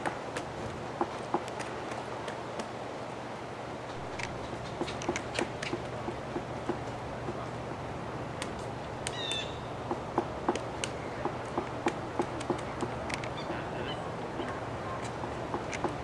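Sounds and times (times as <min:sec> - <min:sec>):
woodpecker pecking on tree trunk: 0:00.0 - 0:02.7, 0:03.9 - 0:07.6, 0:08.4 - 0:13.7, 0:14.4 - 0:16.0
bird call: 0:09.1 - 0:09.8, 0:12.4 - 0:15.0.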